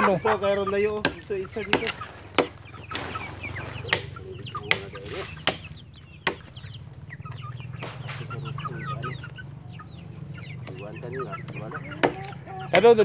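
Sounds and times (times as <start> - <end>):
chicks peeping and clucking: 0.0 - 13.0
sharp knocks: 1.0 - 3.2, 3.8 - 6.6.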